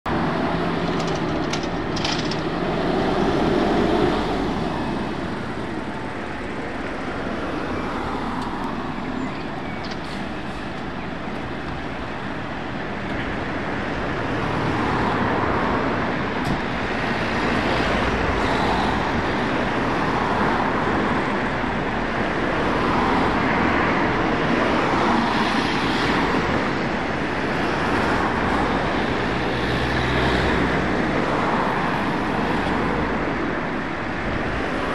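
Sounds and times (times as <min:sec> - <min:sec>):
fire engine diesel engine: 0:00.1 - 0:07.4, 0:08.4 - 0:14.3
road traffic passing: 0:00.1 - 0:34.9.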